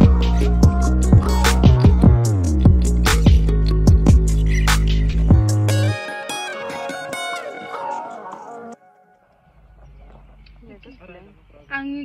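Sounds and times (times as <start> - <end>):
drum hits: 0.0 - 5.6
heavy bass line: 0.0 - 8.4.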